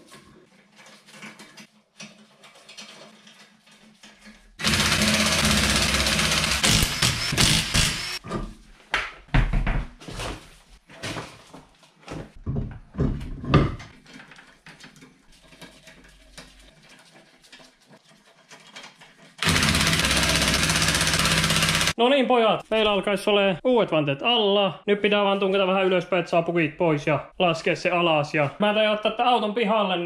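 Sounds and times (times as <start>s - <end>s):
hand work on nuts: 0.0s - 8.4s, 13.9s - 22.0s
impact wrench hammering: 4.6s - 8.2s, 19.4s - 22.0s.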